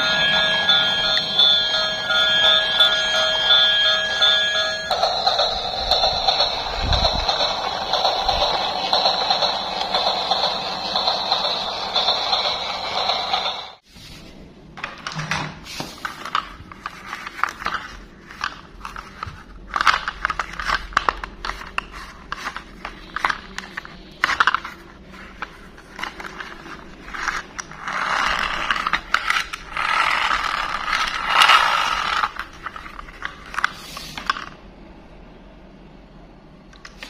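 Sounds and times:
plastic toy parts clicking: 18.4 - 24.7.

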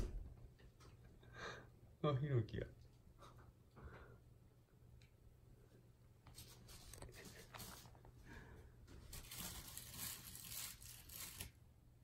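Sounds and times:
faint rustling and scratching: 6.2 - 11.5.

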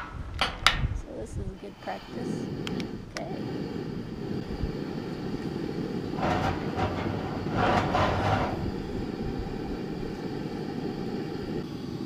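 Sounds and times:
hissing whooshes: 1.6 - 11.6
camp stove burner rushing: 1.6 - 12.0.

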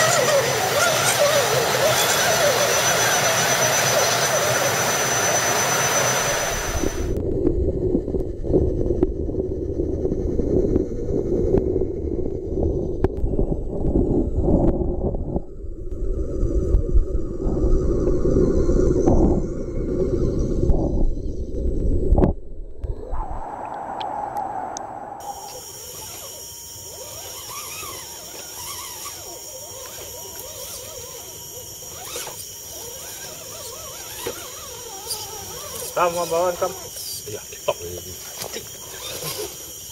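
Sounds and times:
electric motor whining: 0.0 - 7.2, 25.2 - 37.2
steady high-pitched whine: 0.0 - 39.9
muffled underwater truck rumble: 7.2 - 25.6.

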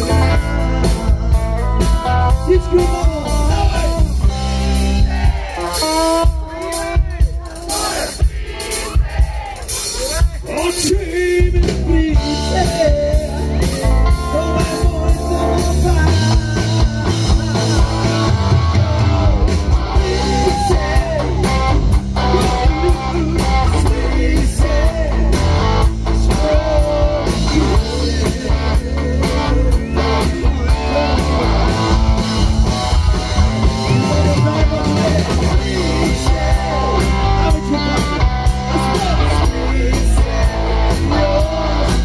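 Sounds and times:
electric guitars: 0.0 - 6.8, 11.4 - 42.0
drum kit: 0.0 - 42.0
man singing into microphone: 2.4 - 4.3, 10.5 - 32.0, 32.6 - 42.0.

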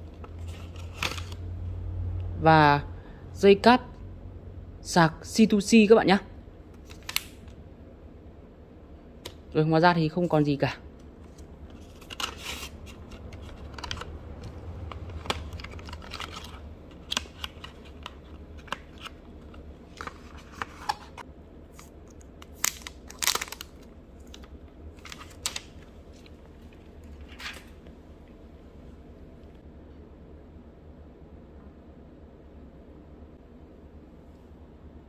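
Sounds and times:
cardboard and paper handling: 0.0 - 1.4, 11.2 - 21.9
steady low hum: 0.0 - 35.0.

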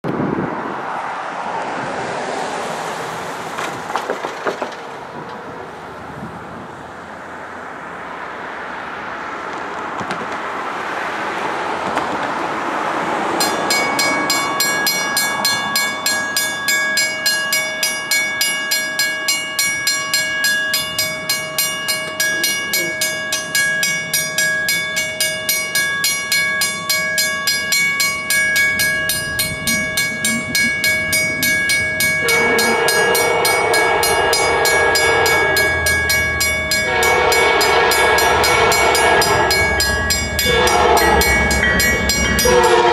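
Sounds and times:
level-crossing warning bell dinging: 13.2 - 42.9.

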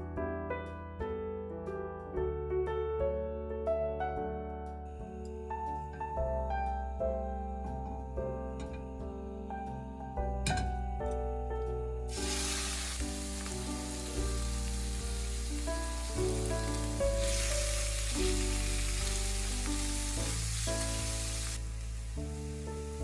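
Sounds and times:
background music: 0.0 - 23.0
chicken sizzling in hot oil: 12.1 - 23.0.

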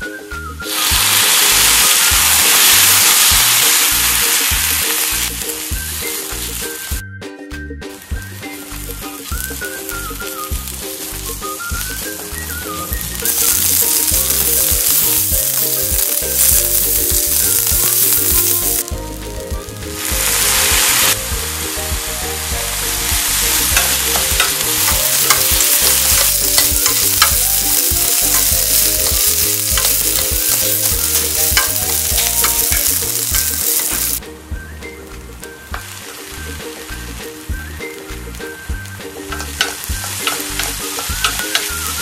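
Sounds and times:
food sizzling in hot oil: 0.6 - 7.0, 8.0 - 34.2, 35.4 - 42.0
spatula scraping and tapping pan: 23.2 - 34.2, 39.3 - 42.0.

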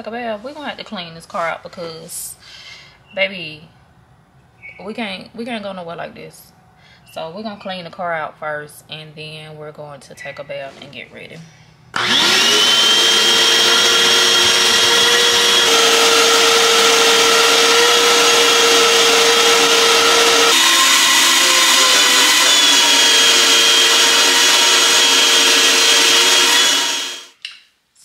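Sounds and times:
vacuum cleaner running: 12.0 - 27.3.

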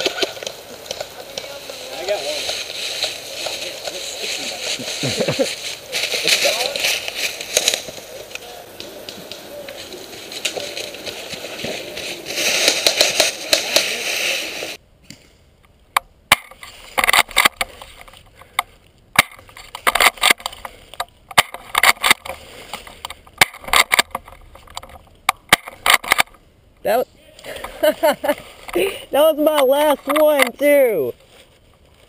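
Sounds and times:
dry leaves crunching under running feet: 0.0 - 14.8
leaves crunching clicks: 0.0 - 14.8.

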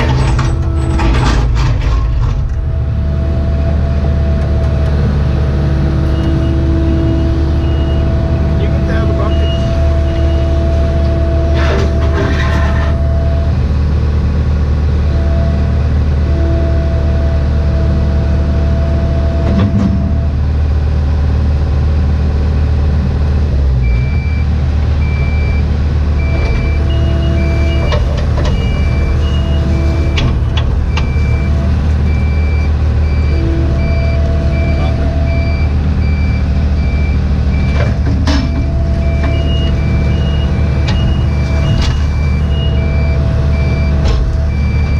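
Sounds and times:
excavator diesel engine running: 0.0 - 44.9
backup alarm beeping: 6.0 - 10.7, 23.8 - 44.9.

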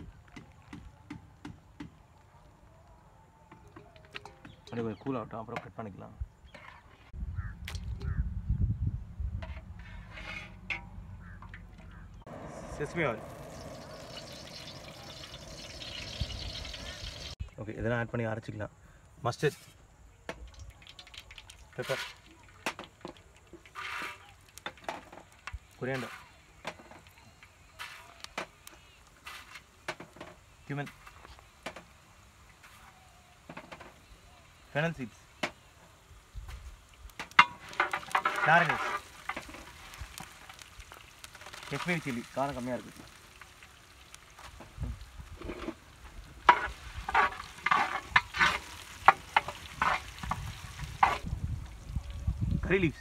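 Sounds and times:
spices sizzling in hot oil: 11.2 - 17.4, 20.4 - 52.8
small pops and ticks: 39.2 - 41.8.

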